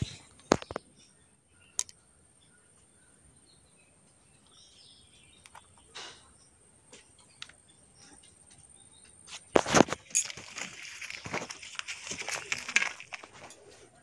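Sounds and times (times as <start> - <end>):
scuffs of thrashing fish: 9.3 - 13.7
fish slapping on floor: 9.6 - 13.5.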